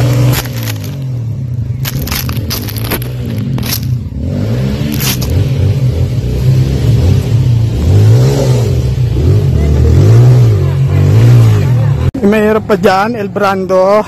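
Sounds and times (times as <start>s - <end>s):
dirt bike engine revving: 0.0s - 12.1s
brush scraping against bike: 1.8s - 4.0s, 4.8s - 5.5s.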